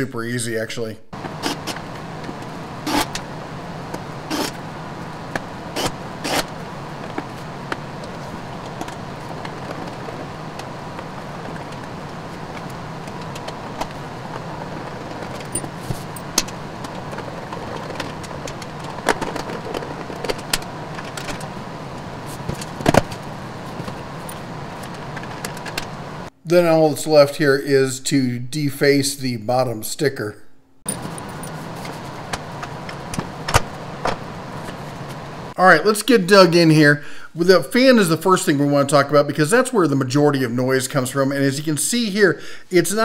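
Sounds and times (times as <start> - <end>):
low hum: 1.0 - 26.4.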